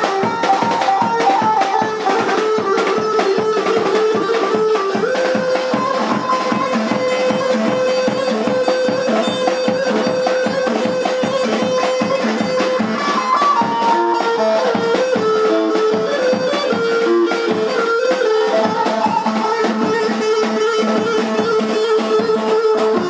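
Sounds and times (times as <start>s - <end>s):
folk dance music: 0.0s - 23.0s.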